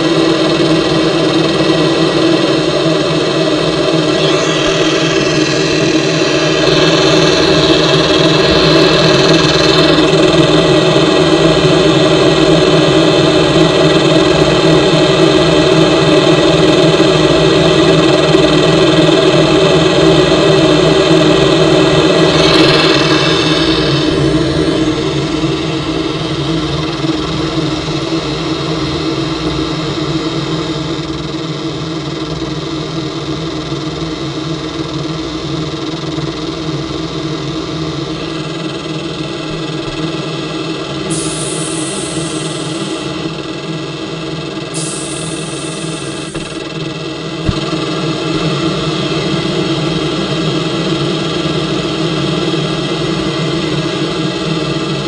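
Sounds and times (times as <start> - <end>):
car wash motor and pump hum: 0.0 - 55.0
hiss: 41.1 - 43.6, 44.6 - 47.0.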